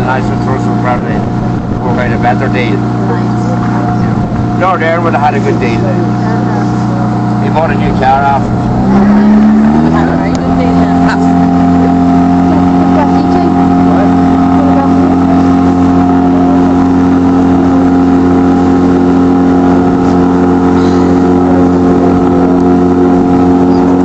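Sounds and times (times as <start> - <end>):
outboard motor running: 0.0 - 24.0.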